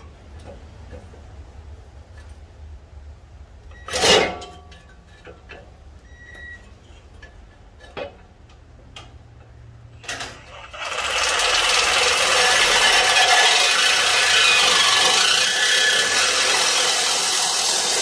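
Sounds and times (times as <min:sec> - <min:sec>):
reciprocating saw burst: 0:10.3 - 0:18.0.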